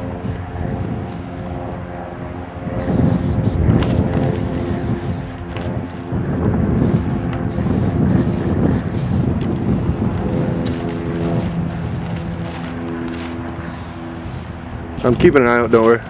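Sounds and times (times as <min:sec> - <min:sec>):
spray paint can hissing: 0:00.0 - 0:00.4, 0:02.8 - 0:03.6, 0:04.4 - 0:05.8, 0:06.8 - 0:09.2, 0:10.2 - 0:12.2, 0:13.9 - 0:14.6
low hum: 0:00.0 - 0:16.0.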